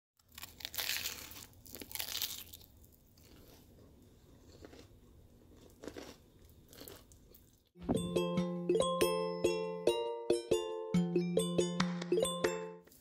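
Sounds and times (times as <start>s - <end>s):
fried crust crunching: 0.2s - 3.7s, 4.4s - 7.7s.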